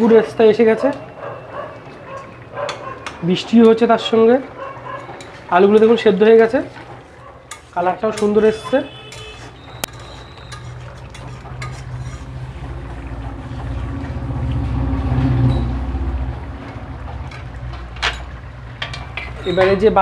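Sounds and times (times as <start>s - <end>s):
curry bubbling: 0.0s - 20.0s
metal spatula scraping a pan: 5.0s - 12.7s
low rumble: 12.3s - 17.8s.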